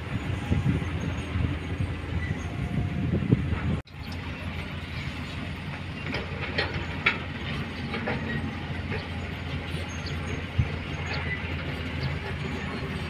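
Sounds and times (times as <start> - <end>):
excavator diesel engine running: 0.0 - 13.0
metallic clanks: 6.0 - 12.8.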